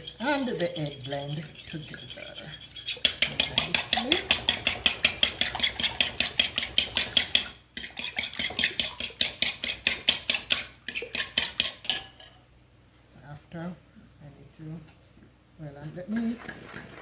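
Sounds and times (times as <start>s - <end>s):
fork beating eggs in bowl: 0.0s - 12.2s, 15.8s - 17.0s.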